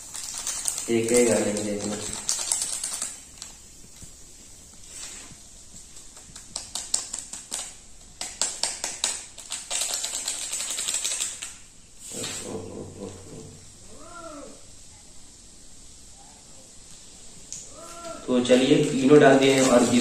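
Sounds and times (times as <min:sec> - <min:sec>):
sachet tapping and crinkling: 0:00.0 - 0:04.2, 0:05.7 - 0:11.6, 0:18.4 - 0:20.0
fizzing hiss: 0:00.0 - 0:20.0.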